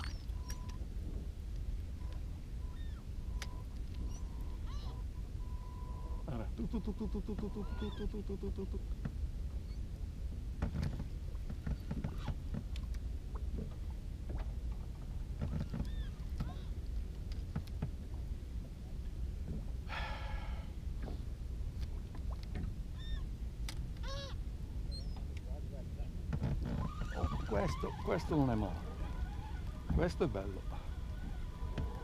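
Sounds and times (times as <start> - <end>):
waterbirds calling: 0.0 - 0.8, 2.0 - 8.8, 15.6 - 16.8, 21.9 - 23.4, 26.9 - 32.0
boat engine low rumble: 0.0 - 32.0.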